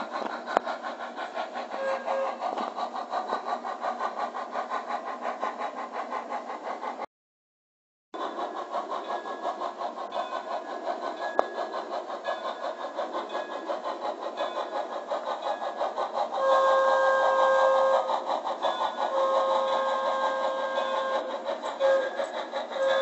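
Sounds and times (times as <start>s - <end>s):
model steam locomotive chuffing: 0.0s - 7.1s, 8.2s - 23.0s
steam whistle: 1.8s - 2.4s, 16.4s - 18.1s, 19.1s - 22.2s, 22.8s - 23.0s.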